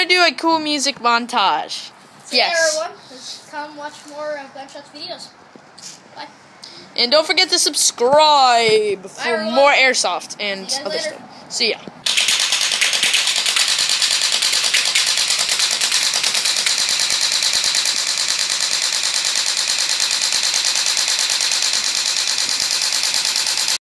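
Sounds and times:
airsoft gun automatic fire: 0:12.0 - 0:23.8.

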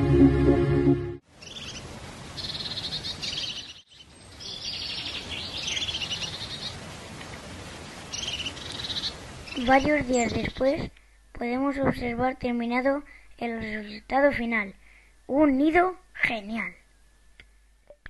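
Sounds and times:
music: 0:00.0 - 0:01.2
songbirds trilling: 0:01.4 - 0:06.8, 0:08.0 - 0:10.8.

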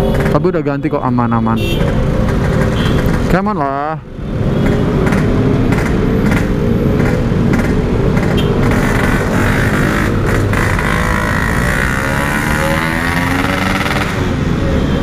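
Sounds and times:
motorcycle two-stroke engine: 0:07.1 - 0:14.3.

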